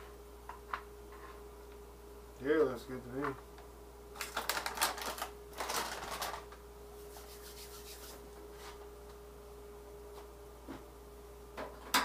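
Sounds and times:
plastic bag rustling: 4.2s - 8.2s.

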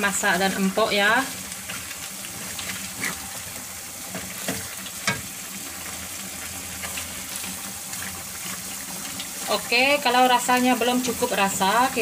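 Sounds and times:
chicken sizzling in gravy: 0.0s - 12.0s
wooden spatula scraping pan: 1.6s - 5.3s.

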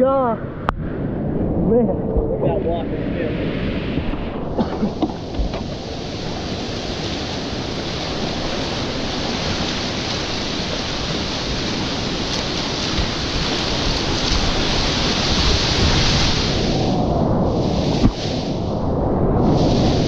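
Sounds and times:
whitewater rapids rushing: 4.6s - 18.6s.

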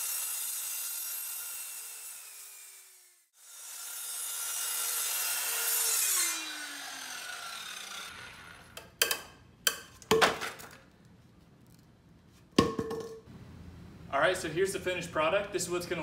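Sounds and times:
circular saw cutting wood: 0.0s - 8.8s
saw motor spinning down: 0.0s - 8.8s.

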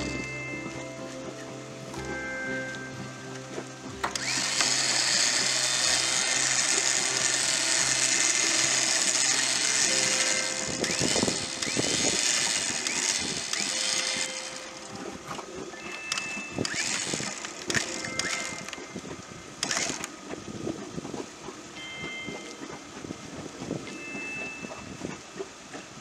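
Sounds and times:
electric winch running: 0.0s - 20.1s.

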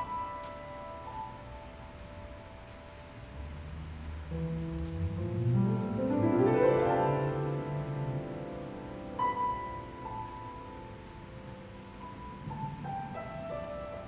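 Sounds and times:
upright piano playing: 0.0s - 14.0s.

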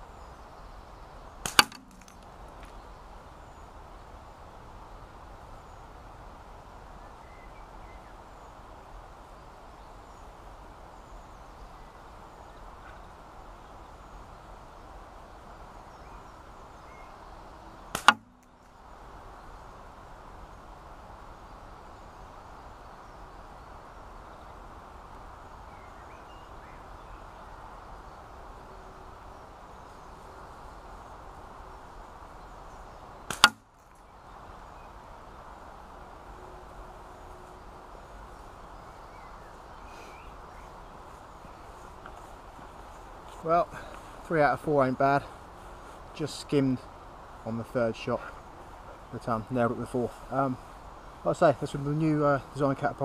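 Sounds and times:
faint background hiss: 0.0s - 53.0s
catapult shot hitting target: 1.5s - 2.2s, 18.0s - 18.4s, 33.3s - 33.6s
faint snap: 18.0s - 18.5s, 33.3s - 33.6s.

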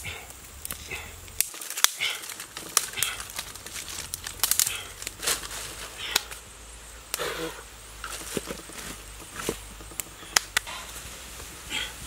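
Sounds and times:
sharp snaps of twigs: 0.0s - 7.4s, 8.0s - 11.5s
dry leaves and twigs crackling: 0.0s - 12.0s.

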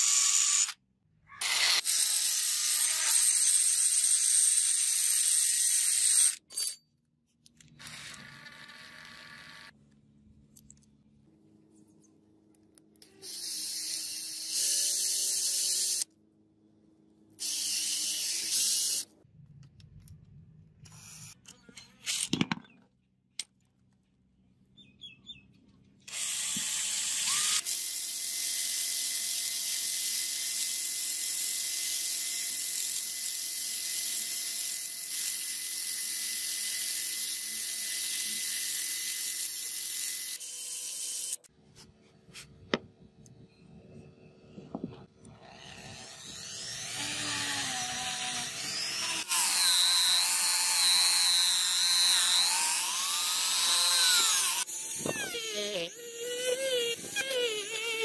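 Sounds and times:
cordless drill spinning: 7.6s - 9.8s, 26.1s - 41.5s, 45.3s - 58.0s.

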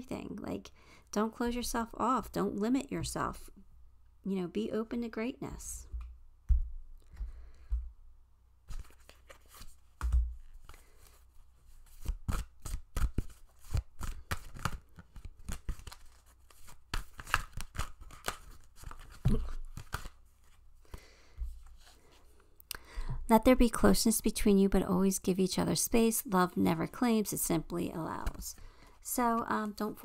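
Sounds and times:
cards shuffling: 8.6s - 22.3s.

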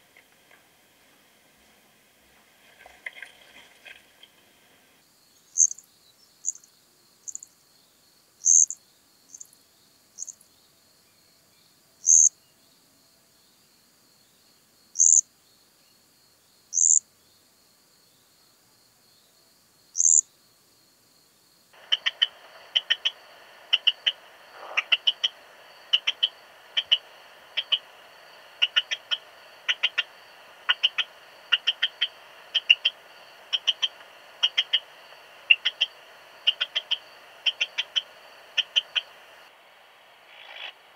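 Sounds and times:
cricket chirping: 0.0s - 40.9s
bat detector chirps: 5.6s - 5.8s, 8.4s - 9.4s, 12.1s - 12.3s, 15.0s - 15.2s, 16.8s - 17.0s, 20.0s - 20.2s, 21.8s - 39.5s.

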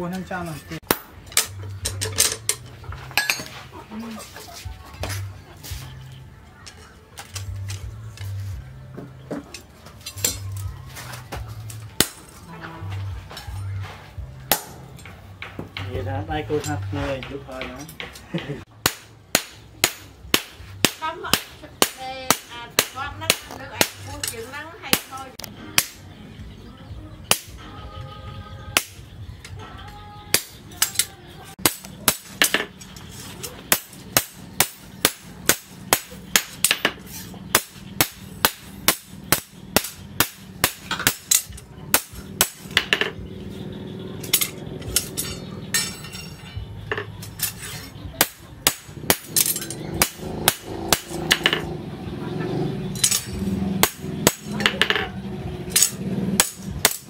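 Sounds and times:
hammer striking steel blade: 12.0s - 12.3s, 14.5s - 14.9s, 18.8s - 25.2s, 25.8s - 26.0s, 30.3s - 32.7s, 33.7s - 43.0s, 47.2s - 51.7s, 53.0s - 55.0s, 55.7s - 57.0s.

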